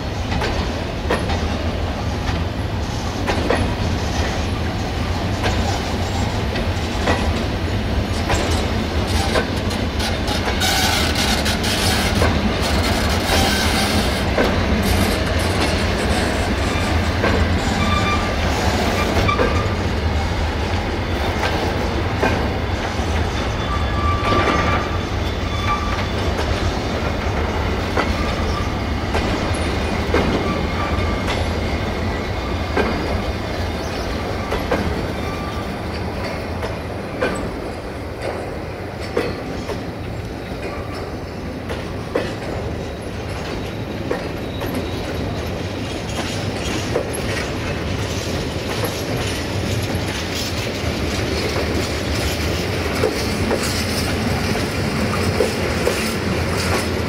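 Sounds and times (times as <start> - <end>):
freight train wheels clacking: 0.0 - 57.0
wheel squeals: 10.0 - 14.2, 17.6 - 19.8, 22.7 - 26.4.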